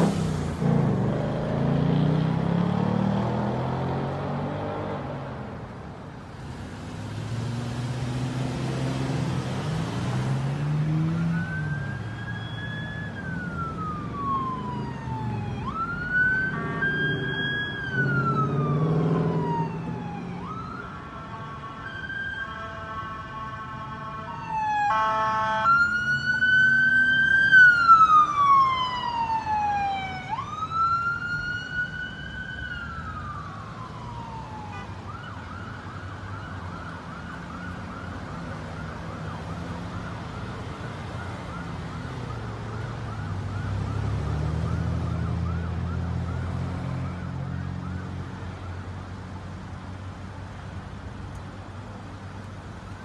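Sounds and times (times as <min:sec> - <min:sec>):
traffic engines rumbling: 0:00.0 - 0:53.0
police siren wailing and yelping: 0:10.9 - 0:23.6, 0:24.2 - 0:48.9.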